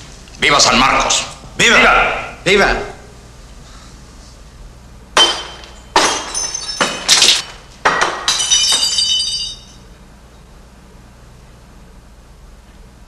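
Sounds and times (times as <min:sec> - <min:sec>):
glass shards tinkling: 0:05.2 - 0:07.4, 0:08.3 - 0:09.8
drinking glasses smashing: 0:05.2 - 0:09.8.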